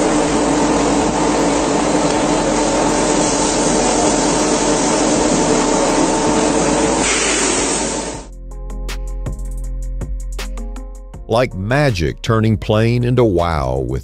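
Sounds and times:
factory machinery running: 0.0 - 8.3
bright hiss: 1.4 - 8.3.

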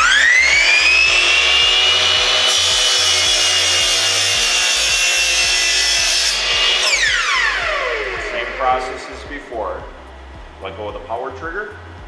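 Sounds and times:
blade sawing through wood: 0.0 - 9.0
saw motor whining: 0.0 - 9.0.

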